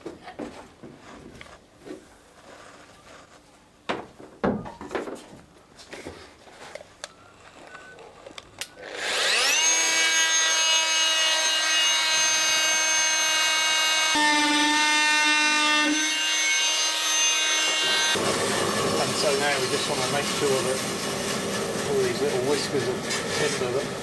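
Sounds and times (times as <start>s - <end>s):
power tool cutting wood: 8.6s - 24.0s.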